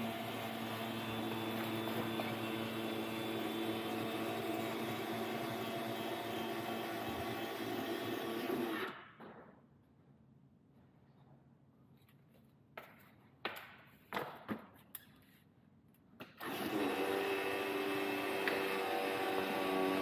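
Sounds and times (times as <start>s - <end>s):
electric actuator motor running: 0.0s - 8.8s.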